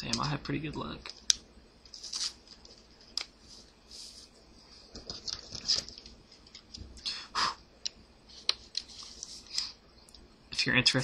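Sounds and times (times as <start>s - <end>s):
wrapper rustling: 1.8s - 4.3s, 4.9s - 6.8s.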